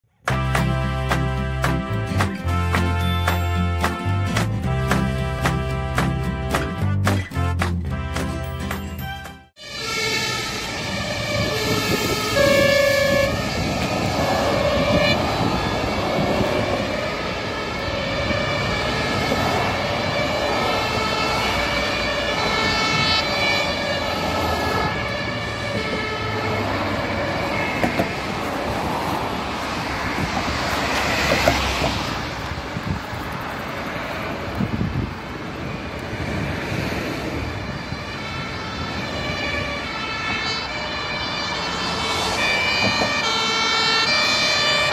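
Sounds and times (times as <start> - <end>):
road traffic noise: 0.0 - 44.9
fire engine two-tone siren: 9.6 - 28.8, 35.6 - 44.9.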